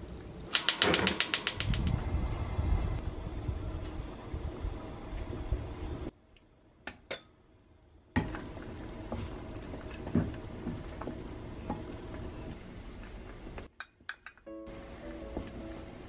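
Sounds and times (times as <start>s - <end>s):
beans bubbling at a boil: 0.6s - 6.2s, 8.1s - 13.6s.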